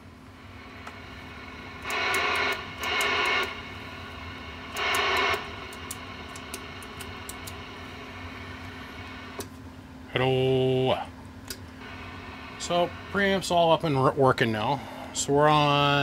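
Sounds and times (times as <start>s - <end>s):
low equipment hum: 0.0s - 16.0s
bursts of radio static: 4.8s - 5.6s.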